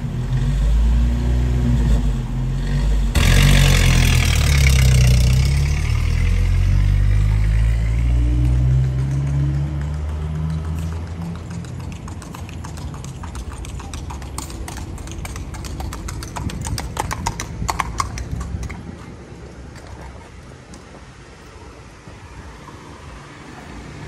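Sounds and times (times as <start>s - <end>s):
horse hooves clip-clopping on asphalt: 8.2s - 22.9s.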